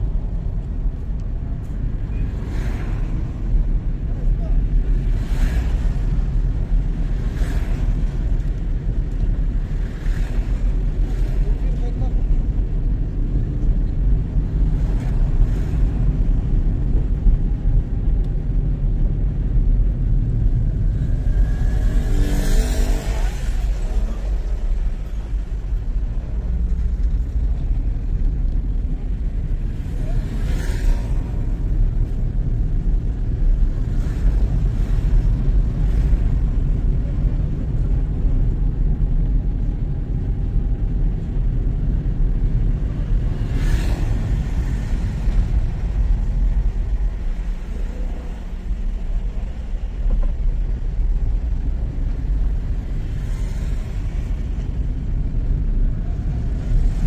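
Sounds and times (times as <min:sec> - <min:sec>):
road and wind rumble: 0:00.0 - 0:57.0
vehicle passing by: 0:20.9 - 0:24.5.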